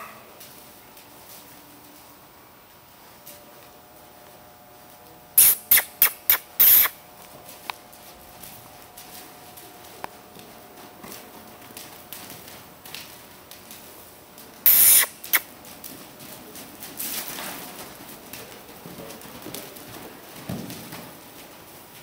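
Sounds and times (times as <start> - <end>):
hoofbeats on dirt: 6.8 - 22.0.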